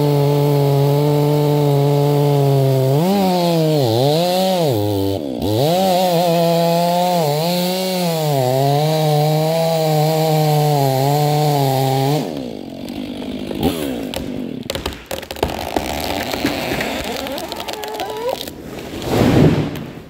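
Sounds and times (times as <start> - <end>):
chainsaw cutting wood: 0.0 - 19.9
wood cracking and snapping: 11.1 - 20.0.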